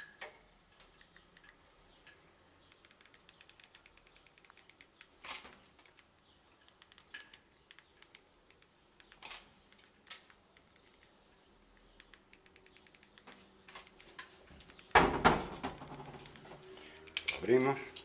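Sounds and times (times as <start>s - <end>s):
faint rapid clicking and ticking: 0.8s - 15.0s.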